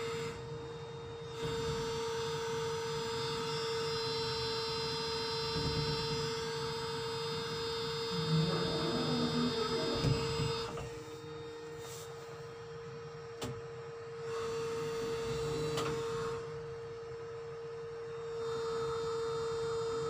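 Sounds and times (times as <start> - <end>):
crane motor hum with whine: 0.0 - 20.0
low rumbling: 8.1 - 10.5.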